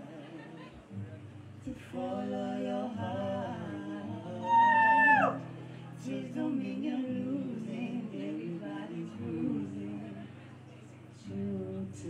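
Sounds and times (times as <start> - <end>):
strummed acoustic guitar: 0.0 - 4.5, 5.3 - 12.0
woman singing: 1.7 - 10.4, 11.2 - 12.0.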